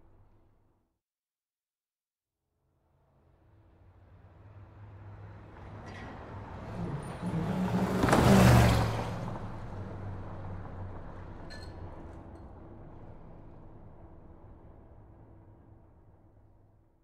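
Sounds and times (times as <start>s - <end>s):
background traffic: 3.5s - 17.0s
car driving past: 3.9s - 15.4s.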